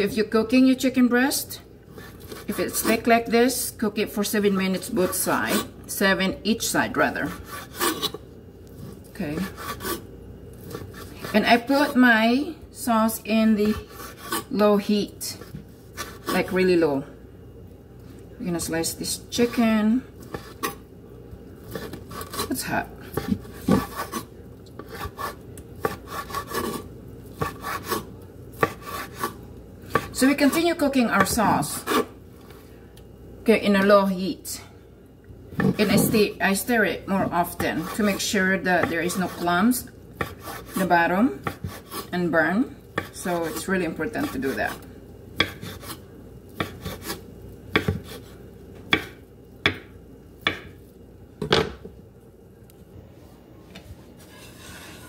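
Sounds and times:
knife rasping through meat: 0:07.2 - 0:08.2, 0:09.4 - 0:10.0, 0:10.6 - 0:11.9, 0:13.6 - 0:14.5, 0:15.9 - 0:16.5, 0:21.7 - 0:22.6, 0:23.2 - 0:30.1, 0:40.2 - 0:40.8, 0:41.4 - 0:42.1, 0:45.4 - 0:46.0, 0:46.6 - 0:47.2
knife tapping on wooden board: 0:49.7 - 0:49.9.

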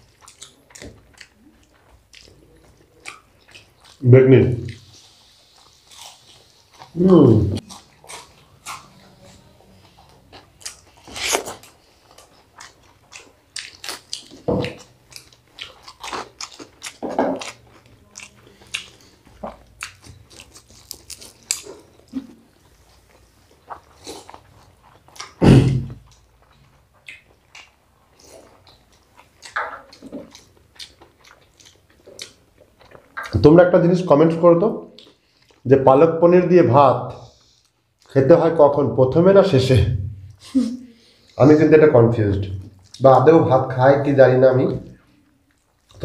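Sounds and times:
chewing with wet mouth clicks: 0:00.0 - 0:04.0, 0:07.6 - 0:33.4, 0:34.9 - 0:35.6, 0:42.3 - 0:43.0
crunching fried food: 0:00.0 - 0:33.4
loud thump: 0:25.4 - 0:26.0.

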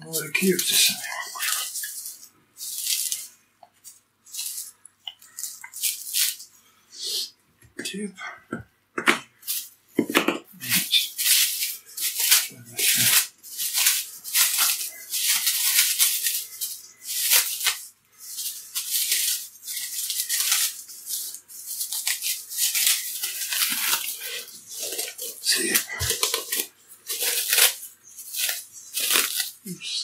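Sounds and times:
cling film crinkling: 0:00.0 - 0:06.5, 0:10.6 - 0:29.7.

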